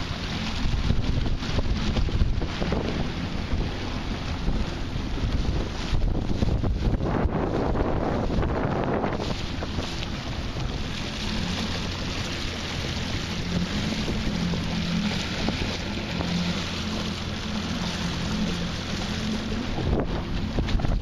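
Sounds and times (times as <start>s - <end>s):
outboard motor running: 0.0s - 21.0s
wind noise on microphone: 0.0s - 21.0s.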